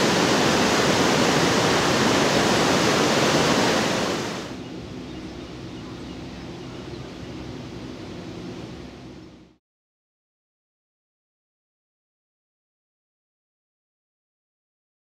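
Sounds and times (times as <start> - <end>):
rushing water: 0.0 - 4.6
faint low hum: 0.0 - 9.6.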